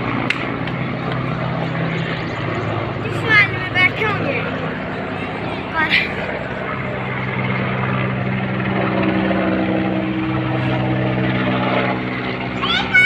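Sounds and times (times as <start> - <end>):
helicopter flying overhead: 0.0 - 13.0.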